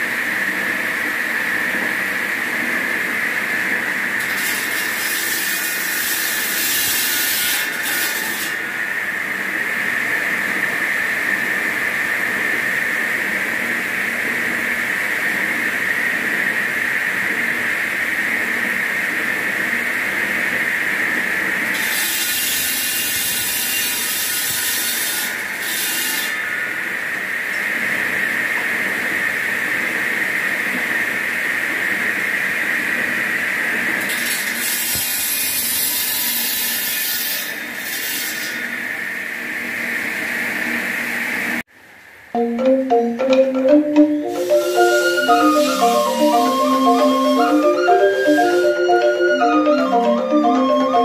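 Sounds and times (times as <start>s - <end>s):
stone-cutting saw whining: 4.2s - 9.0s, 21.7s - 26.7s, 44.3s - 49.2s.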